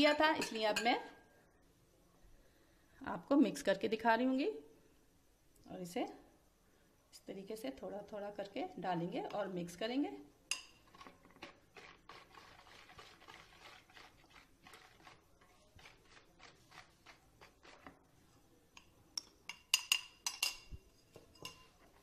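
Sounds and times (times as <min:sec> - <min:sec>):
whisk stirring batter in a bowl: 0:10.9 - 0:18.2
whisk clinking on bowl: 0:18.8 - 0:21.8.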